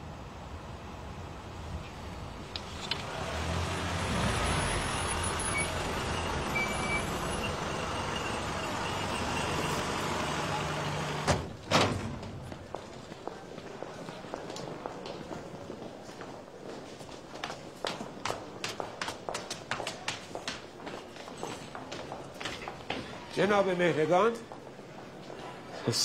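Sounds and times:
light footsteps: 12.2s - 23.5s.

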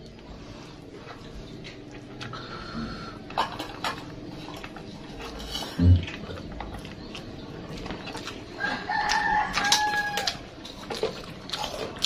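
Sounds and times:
chewing: 0.0s - 12.0s
rooster crowing: 8.6s - 10.5s.

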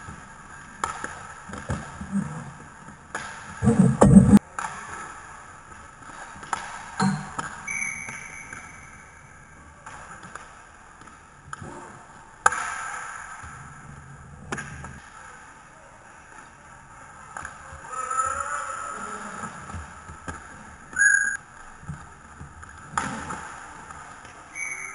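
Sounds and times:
hockey sticks and puck clacking: 0.0s - 2.0s, 4.4s - 13.7s
whistle blowing: 7.7s - 9.2s, 21.0s - 21.4s, 24.5s - 24.9s.

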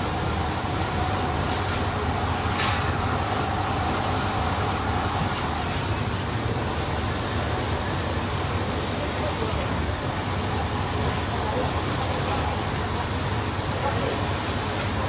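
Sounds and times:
large fire burning: 0.0s - 15.0s
fire crackle: 10.4s - 15.0s.

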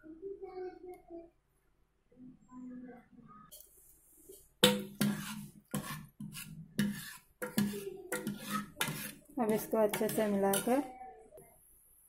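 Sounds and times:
ladle knocking metal pot: 4.6s - 10.8s.

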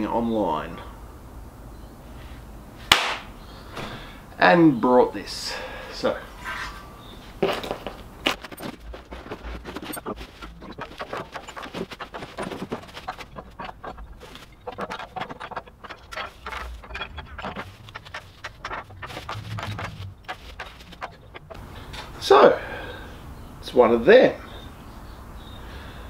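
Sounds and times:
plastic and cardboard rustling: 7.3s - 21.8s.

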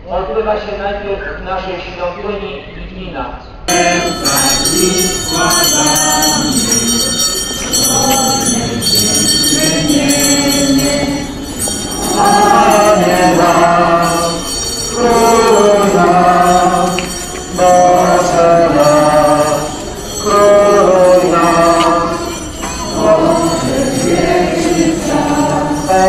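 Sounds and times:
crowd singing a hymn: 3.7s - 26.0s
small bells jingling: 3.7s - 26.0s.

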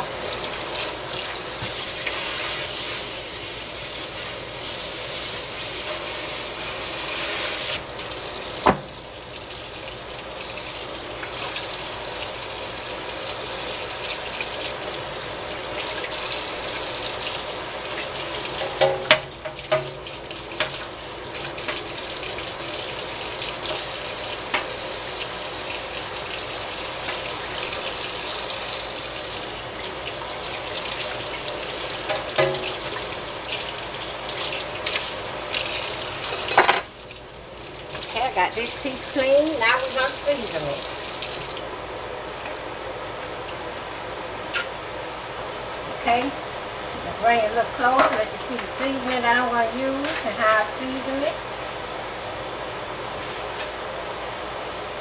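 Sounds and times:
faucet running into a sink: 3.8s - 41.6s.

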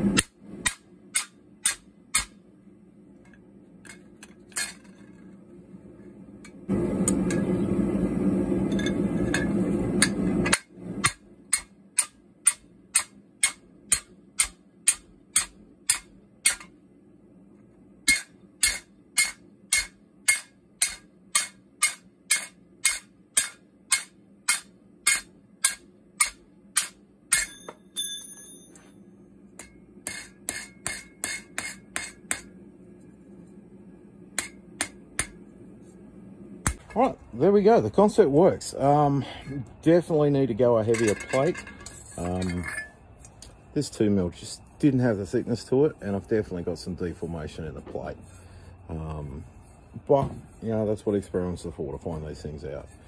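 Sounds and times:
hammer striking metal: 0.1s - 2.4s, 8.7s - 16.7s, 18.0s - 28.8s, 29.6s - 32.5s, 34.3s - 35.4s
metallic ring: 8.6s - 16.7s, 18.1s - 32.5s, 40.8s - 43.1s.

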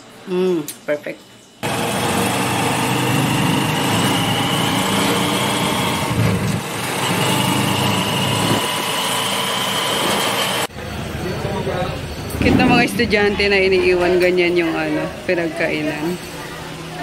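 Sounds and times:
small motorcycle engine running: 1.6s - 11.1s.

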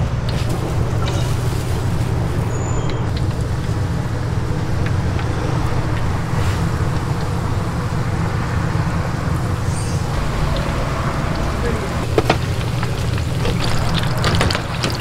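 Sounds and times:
low rumble: 0.0s - 14.8s
oil sizzling in deep fryer: 9.6s - 15.0s.

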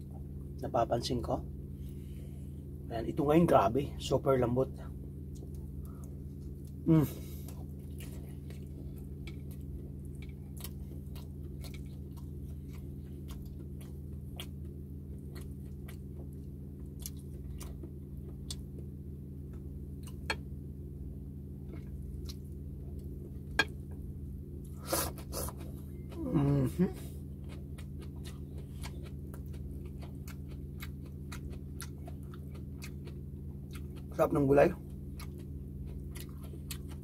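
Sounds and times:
low steady hum: 0.0s - 37.0s
close-up chewing: 5.2s - 18.9s, 24.6s - 37.0s.

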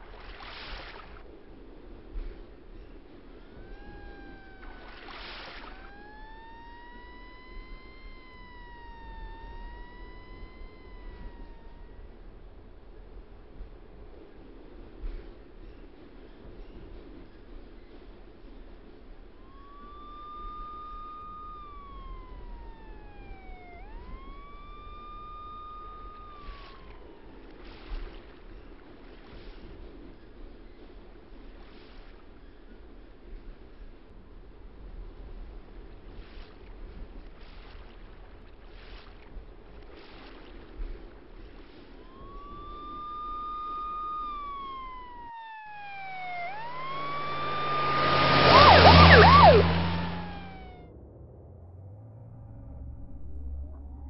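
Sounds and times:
siren-like wailing tone: 3.3s - 13.3s, 18.8s - 29.7s, 41.8s - 54.0s
steady low rumble: 41.9s - 54.0s.

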